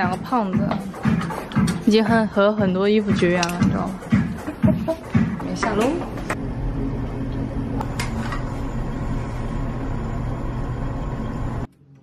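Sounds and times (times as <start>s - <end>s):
low mechanical hum: 5.1s - 12.0s.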